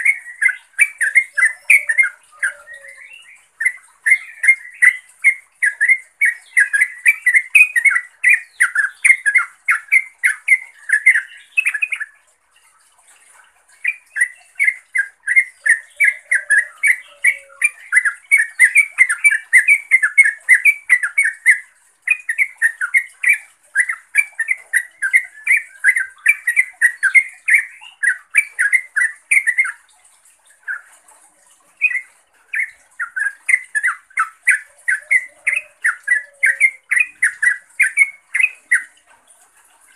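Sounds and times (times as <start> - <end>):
bird chattering calls: 0.0 - 12.1, 31.8 - 39.0.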